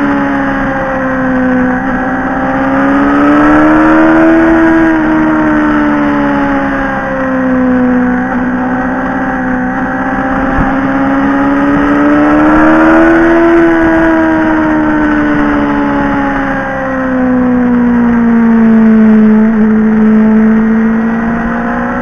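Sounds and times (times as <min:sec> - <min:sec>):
motorcycle engine running: 0:00.0 - 0:22.0
wind rush: 0:10.4 - 0:16.5.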